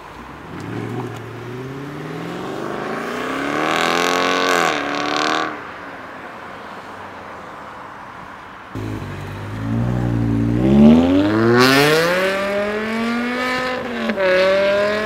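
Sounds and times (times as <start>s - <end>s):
faint traffic noise: 0.0s - 15.0s
car accelerating hard: 8.8s - 15.0s.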